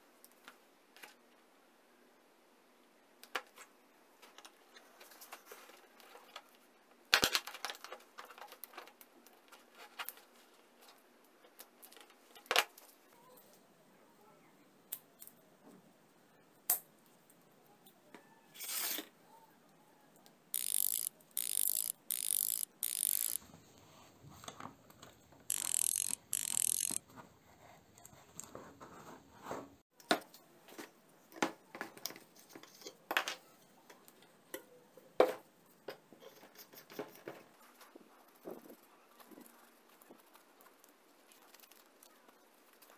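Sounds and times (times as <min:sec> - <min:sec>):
small metal parts clicking: 0:20.5 - 0:23.4, 0:25.5 - 0:27.0.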